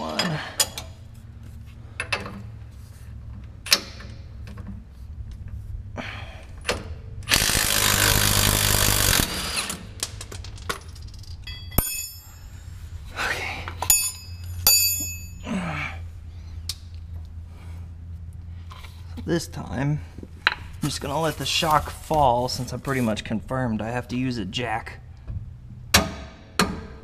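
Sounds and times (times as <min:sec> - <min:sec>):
impact wrench running: 0:07.2 - 0:10.0
metal tools clinking on concrete: 0:10.2 - 0:12.6, 0:13.7 - 0:15.5.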